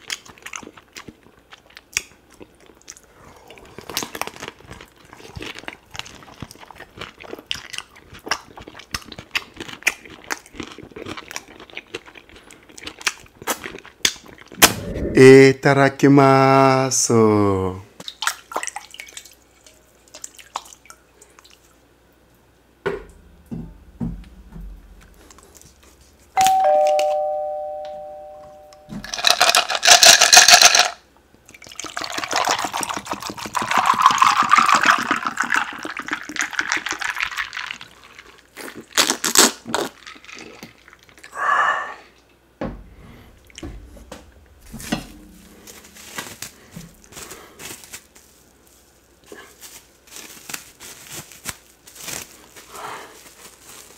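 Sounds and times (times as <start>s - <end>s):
loud rushing noise: 14.6s - 15.6s
two-note doorbell chime: 26.4s - 29.0s
plastic wrap crinkling: 44.3s - 53.9s.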